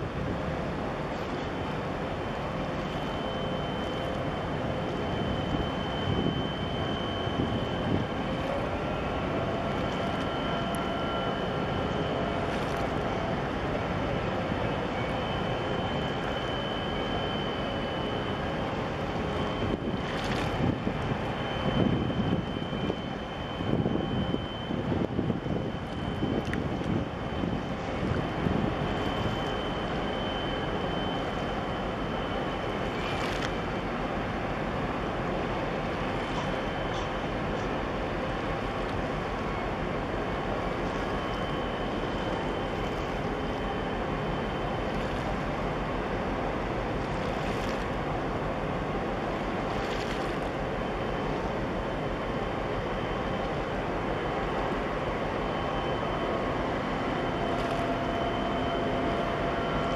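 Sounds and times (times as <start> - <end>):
boat engine drone: 0.0 - 59.9
wind on microphone: 19.6 - 29.3.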